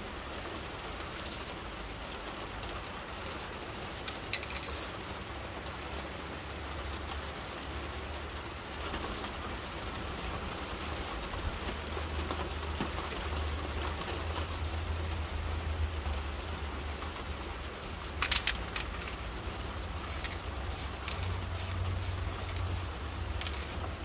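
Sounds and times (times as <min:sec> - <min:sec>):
rain patter: 0:00.0 - 0:24.0
spray paint can hissing: 0:00.3 - 0:04.9, 0:07.9 - 0:11.4, 0:12.0 - 0:12.5, 0:14.0 - 0:14.5, 0:15.1 - 0:15.7, 0:16.3 - 0:16.7, 0:20.0 - 0:24.0.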